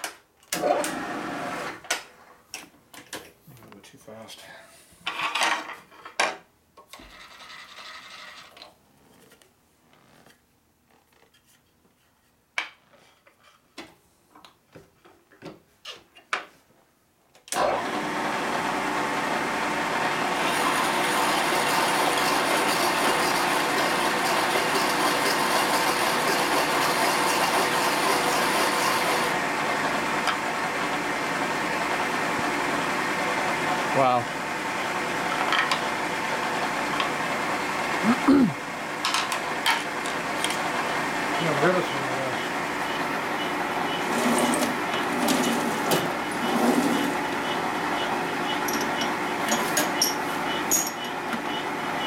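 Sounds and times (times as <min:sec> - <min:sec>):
milling machine spindle running: 0:20.2 - 0:30.4, 0:40.6 - 0:50.0
drill bit cutting metal: 0:20.4 - 0:29.3.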